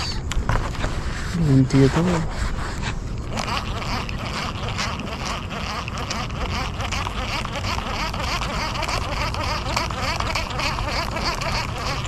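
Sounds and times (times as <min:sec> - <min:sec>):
pulsing high buzz: 0:03.2 - 0:12.0
chattering animal calls: 0:03.4 - 0:12.0.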